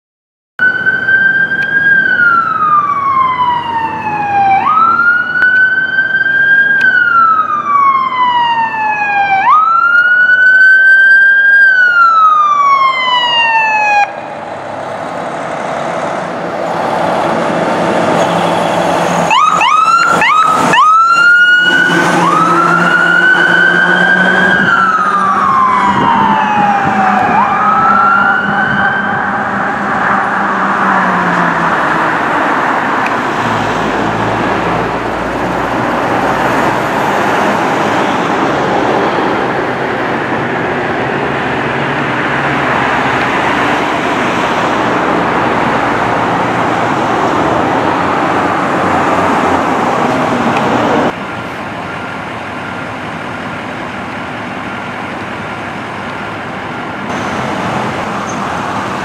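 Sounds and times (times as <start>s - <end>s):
siren yelping sweeps: 0.6s - 14.3s, 18.3s - 32.8s
emergency sirens wailing: 0.6s - 59.0s
road noise: 0.6s - 59.0s
engine rumble: 11.7s - 59.0s.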